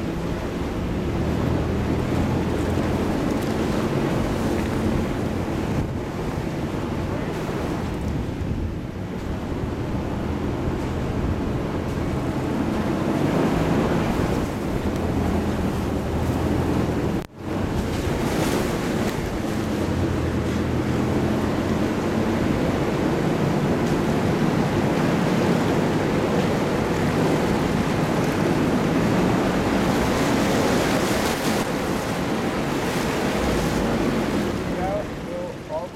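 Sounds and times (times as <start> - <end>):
wind on microphone: 0.0 - 35.2.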